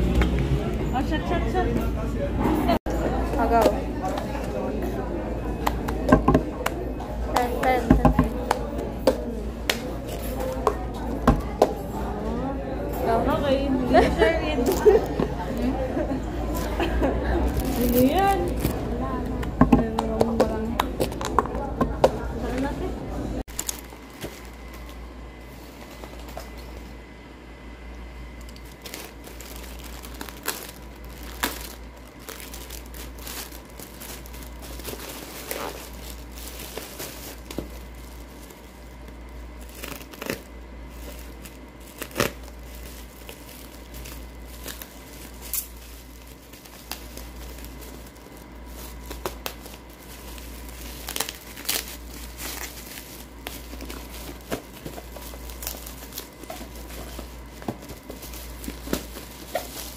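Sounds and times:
steady low hum: 0:00.0 - 0:59.9
plastic and bubble wrap crinkling: 0:07.3 - 0:12.2, 0:14.0 - 0:15.8, 0:16.4 - 0:21.7, 0:23.4 - 0:26.8, 0:28.4 - 0:59.9.

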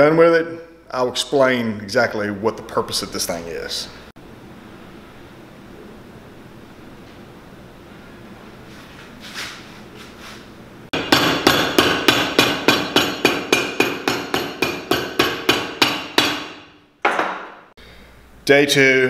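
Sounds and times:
hammer striking leather heel: 0:11.0 - 0:17.6.

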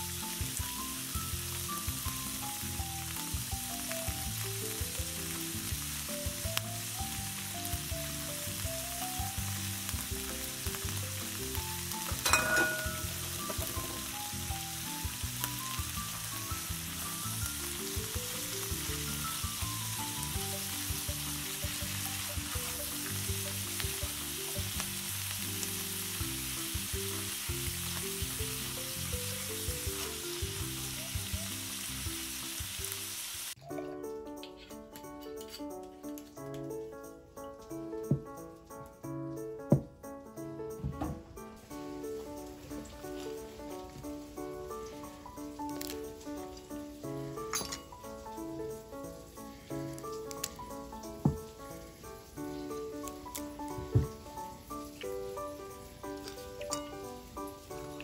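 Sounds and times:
food sizzling in a skillet: 0:00.0 - 0:33.7, 0:41.6 - 0:58.0
slow background music: 0:00.0 - 0:58.0
metal clink: 0:12.2 - 0:13.7, 0:47.5 - 0:48.0, 0:56.7 - 0:57.0.

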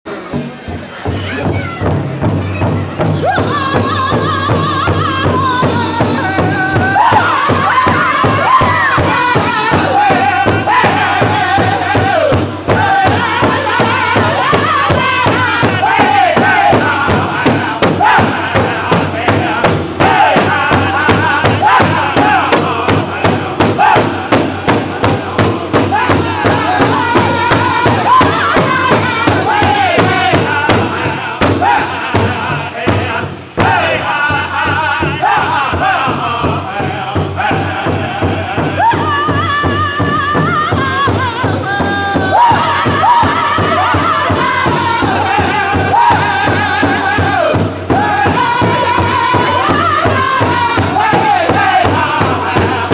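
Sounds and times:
large drum beating: 0:00.1 - 0:52.9
group singing high falling lines: 0:01.8 - 0:52.9.

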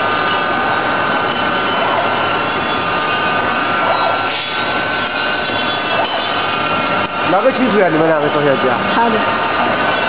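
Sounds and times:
packaging machine whining: 0:00.0 - 0:10.0.

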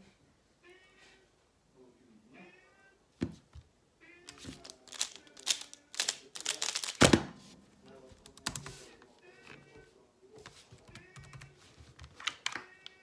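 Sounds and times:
quick plastic puzzle clicks: 0:04.6 - 0:07.0.

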